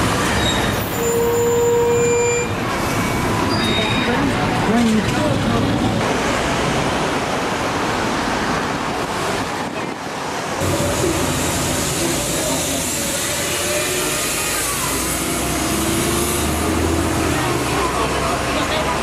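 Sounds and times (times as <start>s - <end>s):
road traffic: 0.0s - 19.0s
faint crowd voices: 16.6s - 19.0s.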